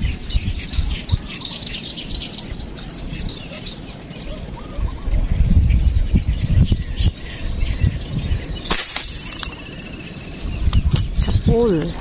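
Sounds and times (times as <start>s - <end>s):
faint bird chirps: 0.0s - 12.0s
low rumbling microphone noise: 0.0s - 12.0s
air rifle shot: 8.7s - 9.6s.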